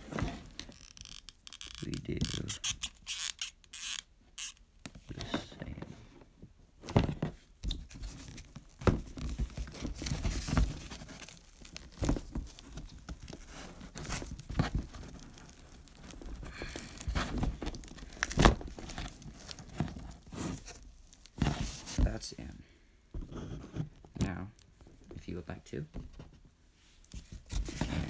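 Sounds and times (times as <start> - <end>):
plastic hose scraping on cardboard: 0.0 - 5.6, 7.7 - 22.3, 27.1 - 28.0.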